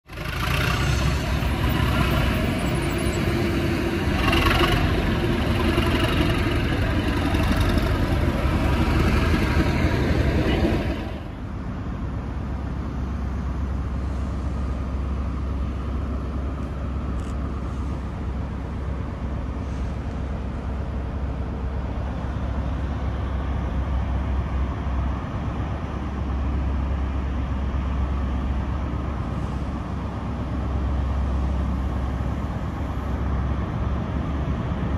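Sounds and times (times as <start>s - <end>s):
diesel engine idling: 0.1s - 34.9s
loud dense noise: 0.4s - 12.4s.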